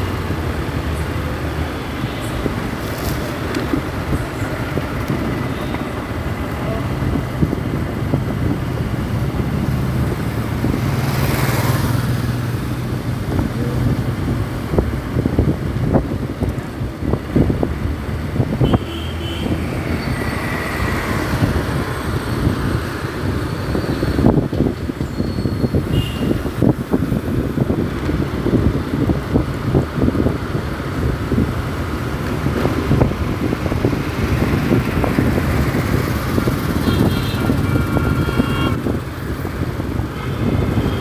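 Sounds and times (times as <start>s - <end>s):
road and wind noise: 0.0s - 41.0s.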